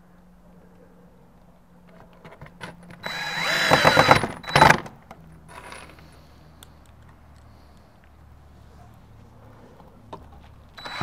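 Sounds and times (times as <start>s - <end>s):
cordless drill driving screw: 3.0s - 4.8s, 10.8s - 11.0s.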